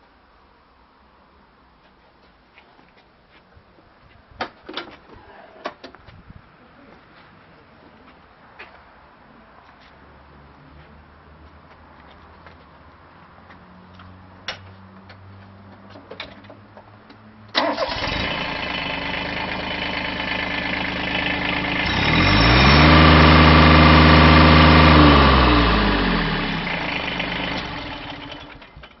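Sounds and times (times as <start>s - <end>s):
tractor diesel engine: 17.5s - 29.0s.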